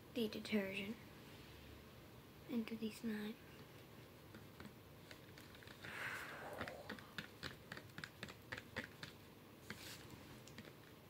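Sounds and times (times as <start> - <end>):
spoon stirring sticky slime: 6.6 - 11.0.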